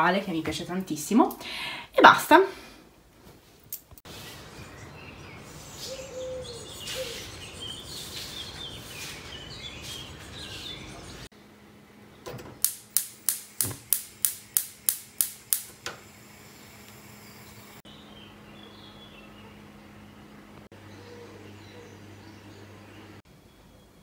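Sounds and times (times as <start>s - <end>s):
outdoor background noise: 0.0s - 24.0s
birds chirping: 4.1s - 12.7s, 16.4s - 24.0s.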